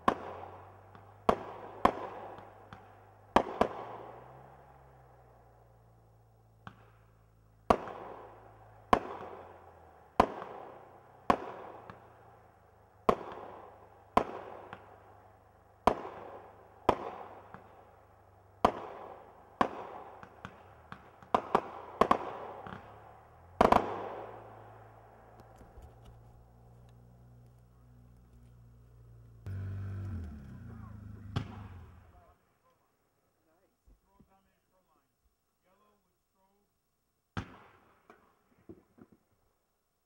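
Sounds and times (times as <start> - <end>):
fireworks bangs echoing: 0.0 - 4.7, 6.6 - 15.1, 15.8 - 25.1, 31.2 - 32.3.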